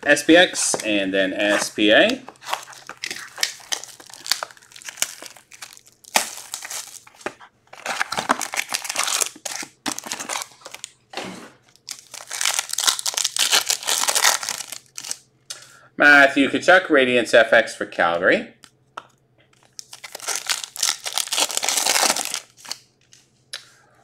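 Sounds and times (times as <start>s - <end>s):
foil wrappers crinkling: 0.4s - 11.0s, 11.7s - 15.2s, 19.6s - 22.9s
wrapper tearing open: 2.3s - 10.9s, 11.7s - 15.2s, 19.7s - 22.8s.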